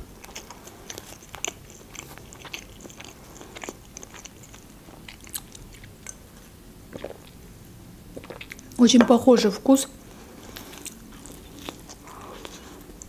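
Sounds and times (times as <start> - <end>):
close chewing mouth smacks: 0.2 - 6.2, 8.2 - 8.8, 10.4 - 13.0.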